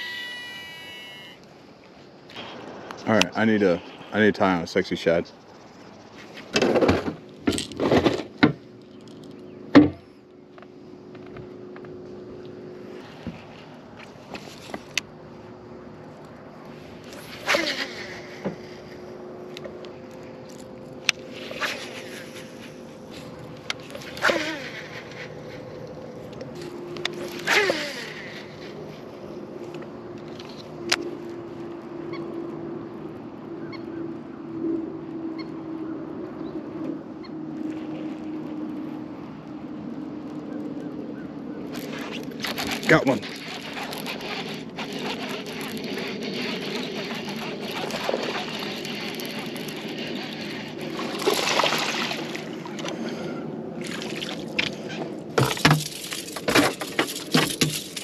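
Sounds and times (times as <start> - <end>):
faint high-pitched calls: 0.0 - 1.5
electric trolling motor humming: 0.0 - 2.2, 41.7 - 58.0
fish splashing at water surface: 42.0 - 58.0.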